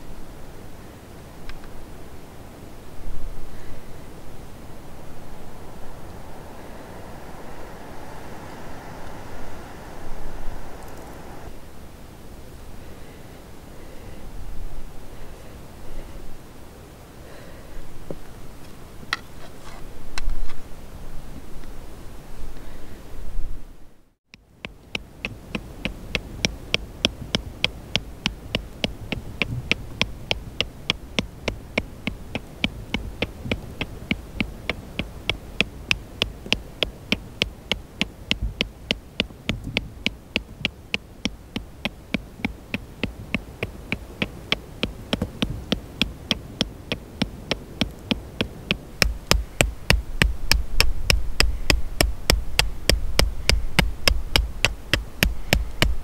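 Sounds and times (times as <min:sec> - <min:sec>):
low drone: 0:01.8 - 0:13.2
fast ticking pulse: 0:04.0 - 0:11.5, 0:24.7 - 0:56.0.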